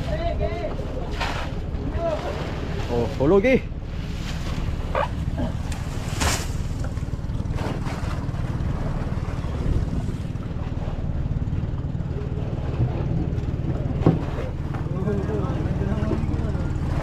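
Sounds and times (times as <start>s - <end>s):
boat engine droning: 0.0s - 17.0s
dry palm fronds rustling: 4.0s - 8.2s.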